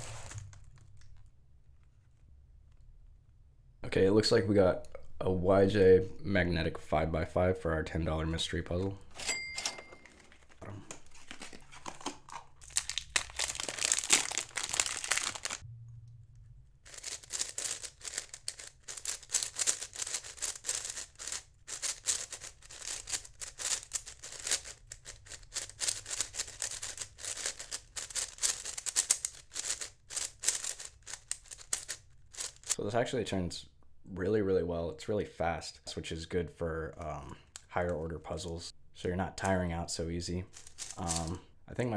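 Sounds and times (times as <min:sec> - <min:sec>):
speed cube clicking: 0:17.3 - 0:32.7.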